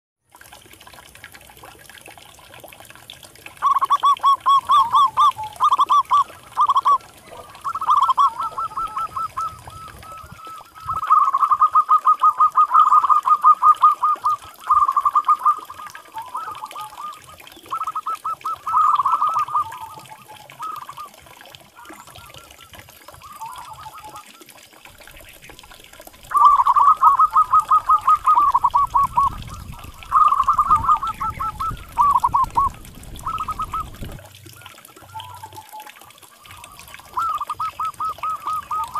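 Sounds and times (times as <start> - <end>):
doves cooing: 3.6 - 38.9.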